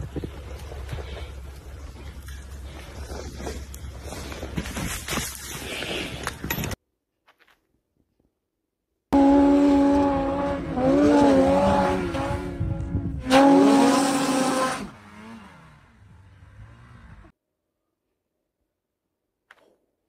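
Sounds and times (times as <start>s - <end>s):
snowmobile engine revving: 9.2s - 17.3s.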